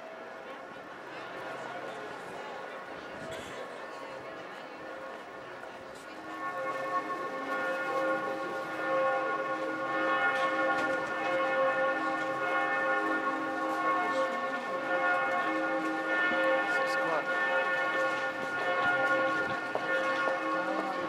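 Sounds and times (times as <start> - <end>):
church bells pealing: 6.1 - 21.0.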